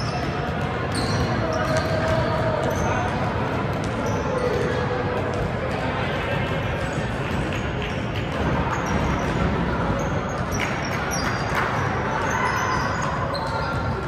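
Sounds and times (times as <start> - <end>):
basketball bouncing on court: 0.0 - 12.0
hubbub of players and spectators: 0.0 - 14.0
sneakers squeaking: 0.0 - 14.0.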